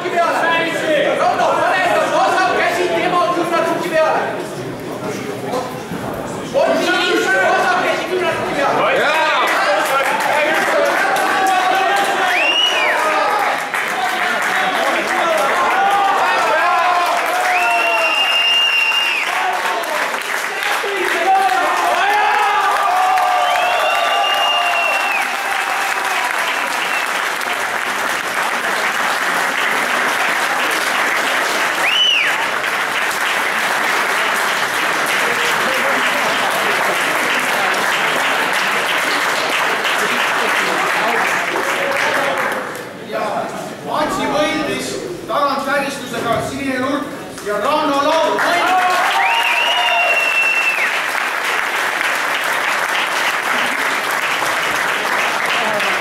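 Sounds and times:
crowd applauding: 6.5 - 43.1, 47.4 - 56.0
long shout: 15.4 - 26.8, 48.4 - 50.9
short whistle: 17.8 - 19.2, 31.8 - 32.3, 49.3 - 50.9.

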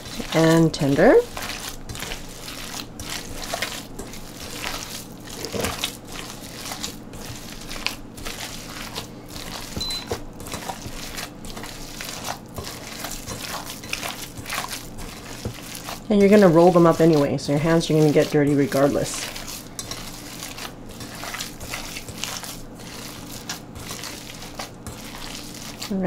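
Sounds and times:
wet squishing of kneaded meat: 0.0 - 26.0.

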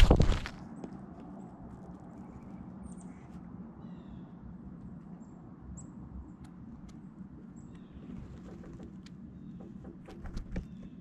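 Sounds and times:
faint bird chirps: 2.1 - 6.4.

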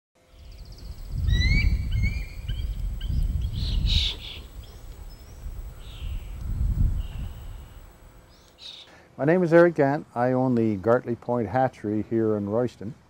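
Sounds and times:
wind buffeting microphone: 0.3 - 8.2
birds chirping and whistling: 0.4 - 8.9.

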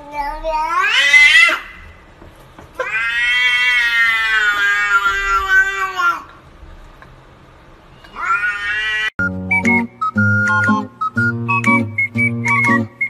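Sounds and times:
cat meowing: 0.0 - 1.8, 2.8 - 6.3, 7.9 - 9.1.

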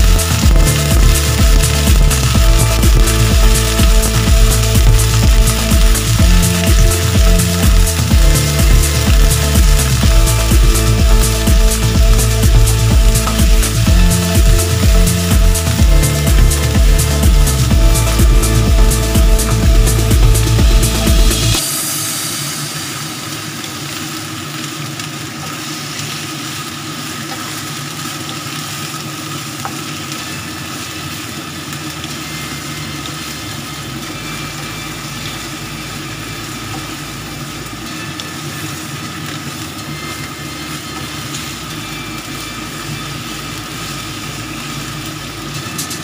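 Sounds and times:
steady hum: 0.0 - 24.2
food sizzling in a wok: 0.0 - 46.0.

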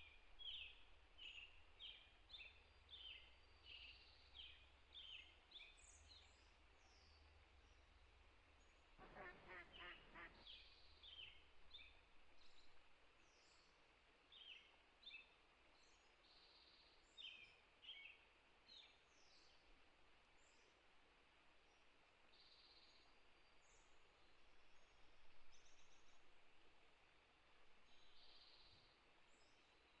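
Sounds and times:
small birds chirping: 8.7 - 13.7
duck quacking: 9.0 - 10.5.

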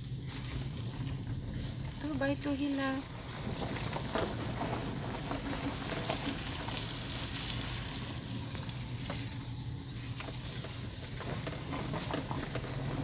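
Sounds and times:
car engine and road noise: 0.0 - 13.0.

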